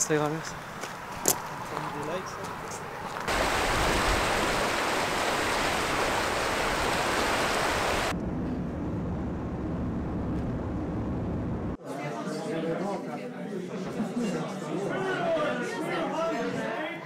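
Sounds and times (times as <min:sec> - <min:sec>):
river rushing over rapids: 0:03.3 - 0:08.1.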